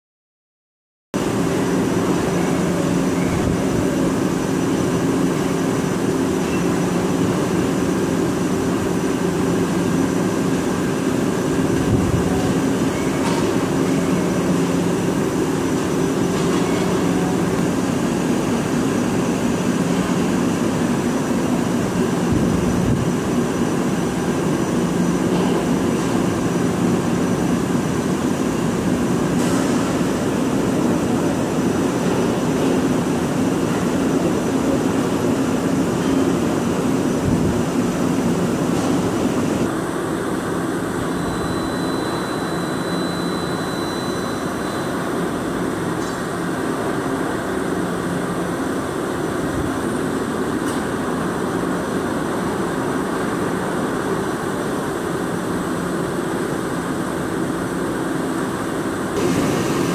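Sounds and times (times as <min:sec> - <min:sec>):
lathe machining hum: 0:01.2 - 0:59.9.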